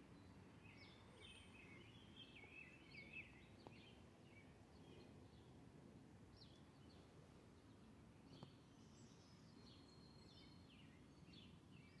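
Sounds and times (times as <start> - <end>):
small birds chirping and trilling: 6.4 - 12.0.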